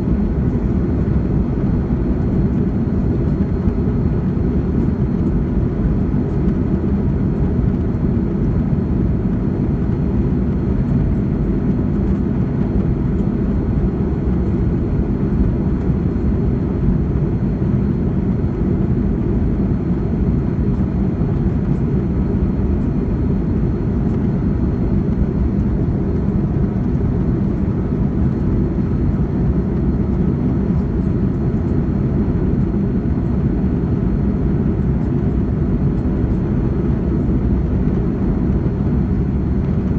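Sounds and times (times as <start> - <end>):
jet engine rumble in cabin: 0.0 - 39.9.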